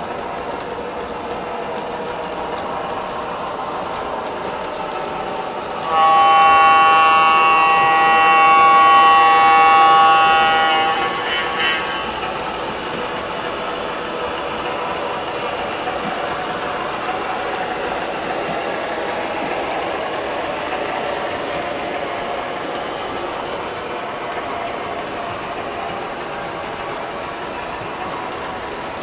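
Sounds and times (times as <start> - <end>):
model train wheels rumbling: 0.0 - 29.0
train horn blast: 5.7 - 13.5.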